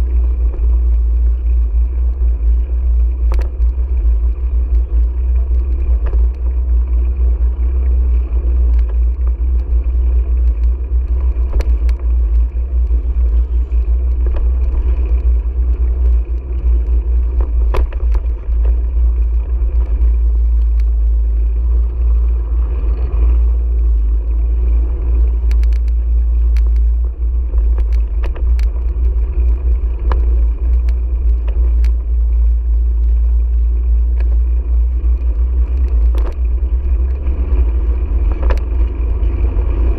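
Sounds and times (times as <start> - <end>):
wind and road rumble: 0.0 - 39.9
light clicks and knocks: 2.9 - 7.2, 7.8 - 21.7, 25.3 - 32.1, 35.1 - 37.6, 38.2 - 39.3.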